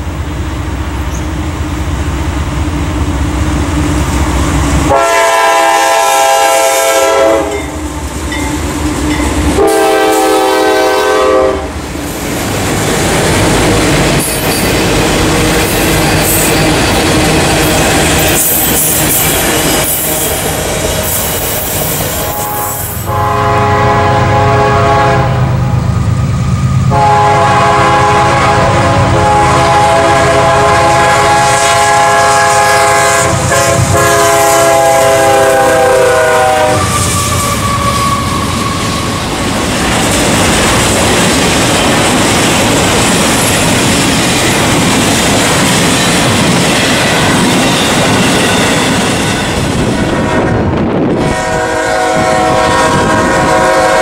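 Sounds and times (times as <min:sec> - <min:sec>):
freight cars rumbling on rails: 0:00.0 - 0:54.0
locomotive horn blasts: 0:04.9 - 0:07.7, 0:09.6 - 0:11.8, 0:22.2 - 0:25.8, 0:26.9 - 0:39.2, 0:51.2 - 0:54.0.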